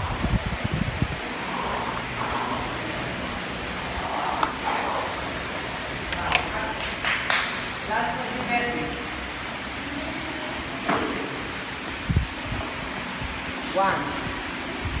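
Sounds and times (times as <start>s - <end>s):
rowing machine flywheel whooshing: 0.0s - 7.9s.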